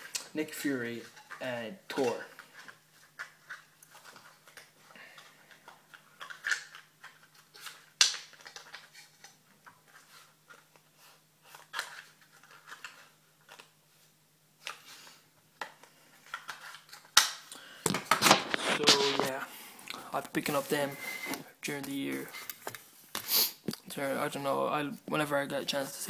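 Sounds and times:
light rustles of handling: 0:18.4 - 0:23.3.

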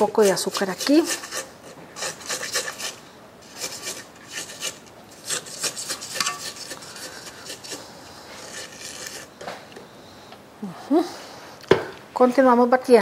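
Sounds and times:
spatula scraping mixer bowl: 0:00.0 - 0:09.6.

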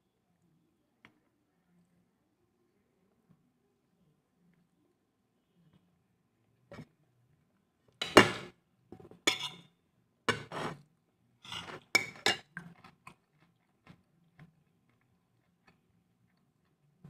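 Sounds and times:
dishes clattering and clinking: 0:08.0 - 0:09.7, 0:10.3 - 0:10.8, 0:11.5 - 0:12.9.

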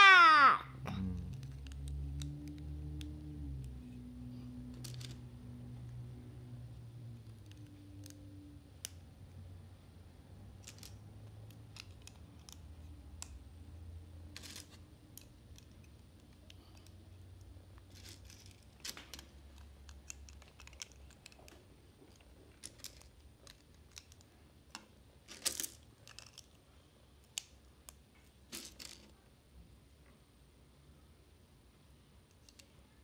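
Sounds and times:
plastic bricks clattering: 0:22.1 - 0:24.2, 0:25.2 - 0:26.6, 0:28.5 - 0:29.1.

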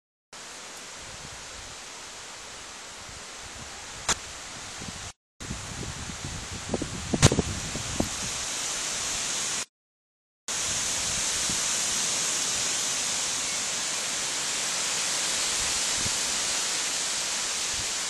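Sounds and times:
steady high hiss: 0:10.5 - 0:18.0.

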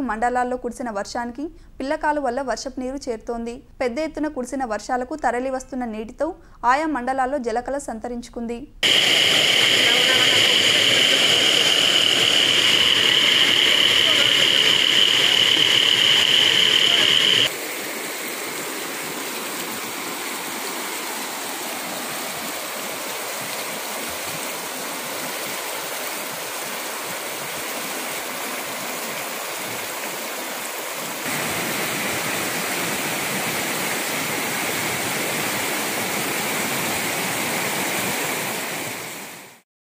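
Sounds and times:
floodwater rushing down stream: 0:08.8 - 0:39.6.

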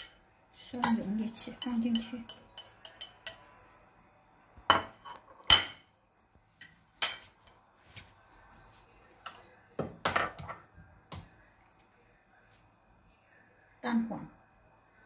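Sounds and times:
dishes clinking: 0:00.0 - 0:00.2, 0:00.8 - 0:03.6, 0:04.7 - 0:05.9, 0:06.6 - 0:07.6
chopsticks knocking on metal bowl: 0:01.6 - 0:03.4.

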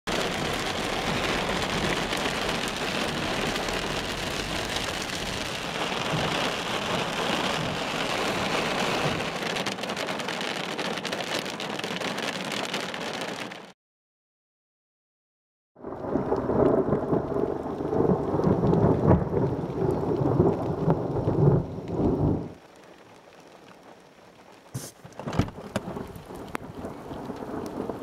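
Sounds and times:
heavy rain on car windshield: 0:00.1 - 0:13.7, 0:15.8 - 0:28.0
raindrop hits: 0:00.1 - 0:13.7, 0:15.8 - 0:28.0.

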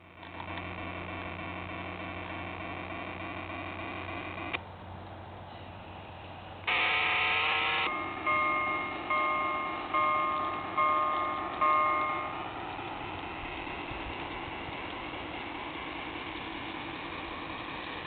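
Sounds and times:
electronic diesel engine hum: 0:00.0 - 0:18.0
locomotive horn blast: 0:06.7 - 0:09.1
locomotive bell ringing: 0:06.7 - 0:18.0.

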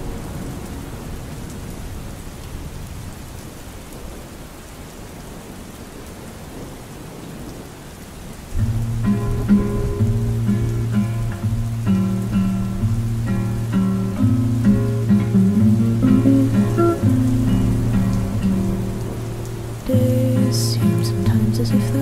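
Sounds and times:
guitar song: 0:00.0 - 0:01.6, 0:08.6 - 0:22.0
steady rain: 0:00.0 - 0:22.0.

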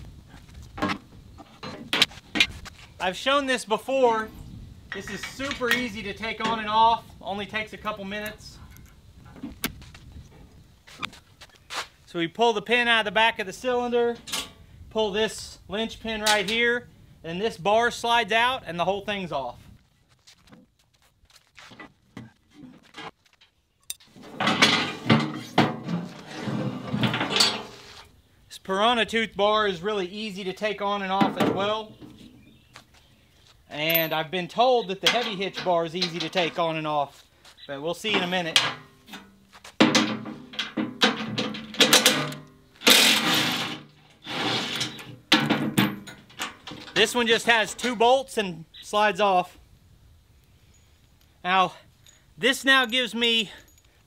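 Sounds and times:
metal bar clanking and scraping: 0:14.2 - 0:14.6, 0:22.6 - 0:28.0, 0:35.0 - 0:36.6, 0:38.1 - 0:47.1.

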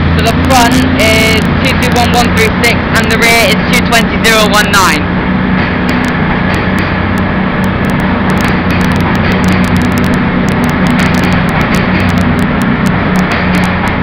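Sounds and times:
train diesel engines humming: 0:00.0 - 0:14.0
train wheels on rails: 0:00.0 - 0:14.0.

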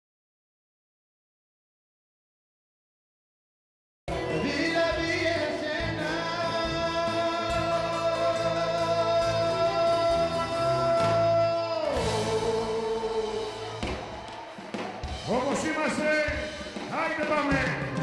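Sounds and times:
band with bouzouki: 0:04.1 - 0:18.0
man singing long note: 0:04.2 - 0:13.8.

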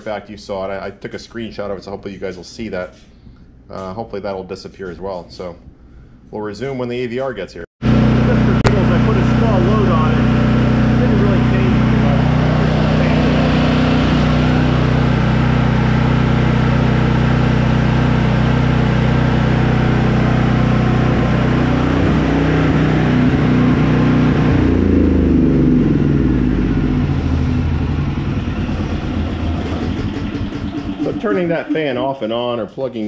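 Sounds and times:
generator engine winding down: 0:07.8 - 0:32.6
portable generator running: 0:07.8 - 0:32.6.

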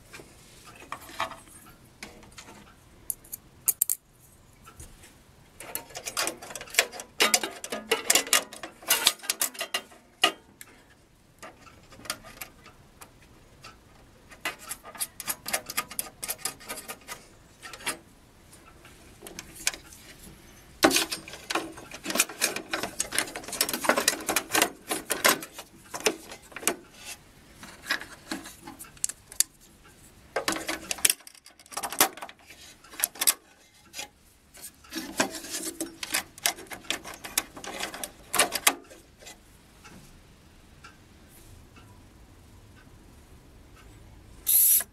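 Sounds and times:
small parts clicking and scraping: 0:00.0 - 0:40.0, 0:44.4 - 0:44.9.

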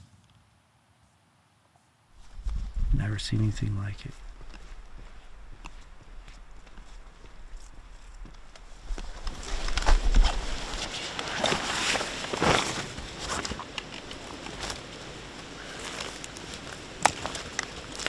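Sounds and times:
clothing and gear rustling: 0:02.1 - 0:02.9, 0:04.1 - 0:18.0
footsteps: 0:02.1 - 0:18.0
backpack dropped on ground: 0:09.2 - 0:13.7.

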